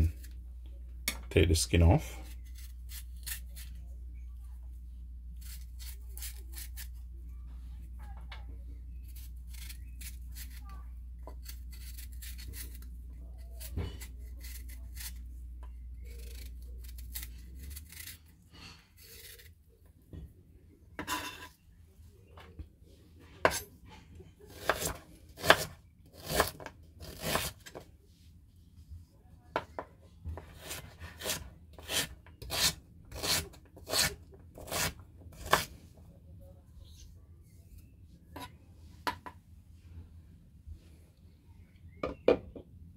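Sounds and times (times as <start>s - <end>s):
knife scraping ginger skin: 2.2s - 3.8s, 5.4s - 6.9s, 9.0s - 10.7s, 11.3s - 15.2s, 16.0s - 19.6s, 24.5s - 27.8s, 30.5s - 35.7s.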